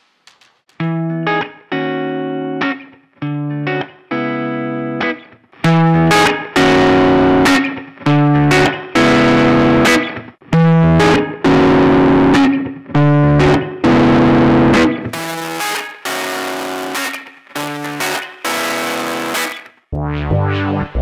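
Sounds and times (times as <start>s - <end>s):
distorted electric guitar riff: 5.6s - 21.0s.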